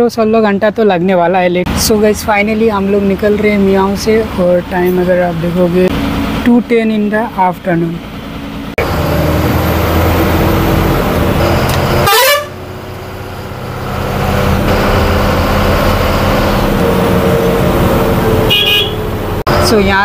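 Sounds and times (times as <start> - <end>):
bus engine running: 0.0 - 20.0
bus horn honking: 11.9 - 12.7, 14.7 - 19.4.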